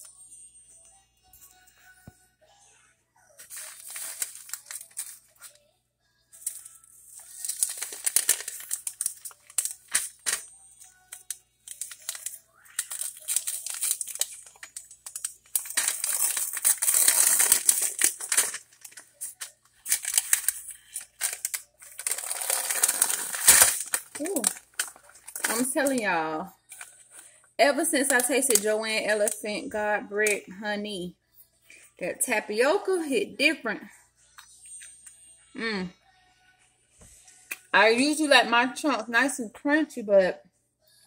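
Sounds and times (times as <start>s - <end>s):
paper wrapping crinkling and tearing: 3.4s - 5.6s, 6.4s - 29.4s.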